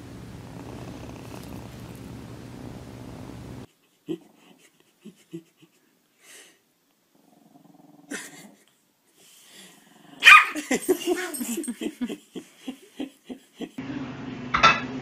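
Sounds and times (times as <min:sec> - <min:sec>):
dog growling low: 0:00.4 - 0:03.3, 0:07.1 - 0:08.6.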